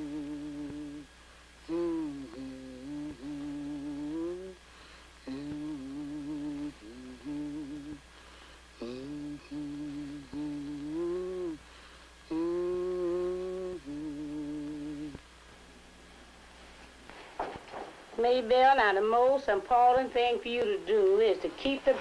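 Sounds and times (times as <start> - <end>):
woman humming: 0.0 - 4.6, 5.2 - 8.1, 8.8 - 11.7, 12.3 - 15.2.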